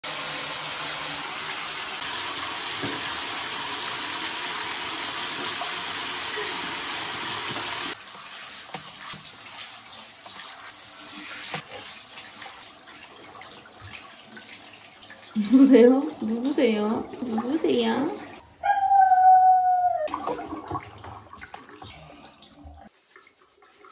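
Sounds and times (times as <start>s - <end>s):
water rushing from bathtub tap: 0.0s - 18.4s, 19.4s - 23.9s
shower spraying on wet fur: 0.1s - 18.4s.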